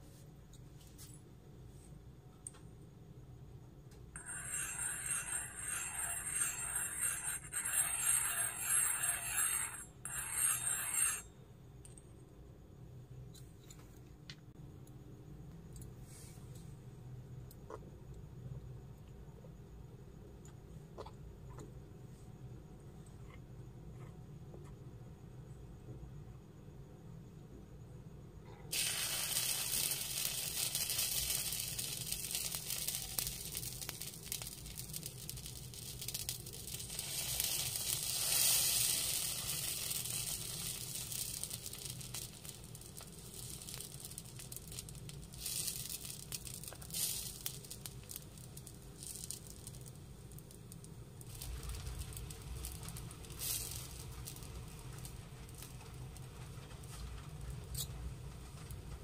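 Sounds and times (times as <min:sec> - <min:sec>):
batter sizzling on hot griddle: 0:04.2 - 0:11.3, 0:28.7 - 0:59.0.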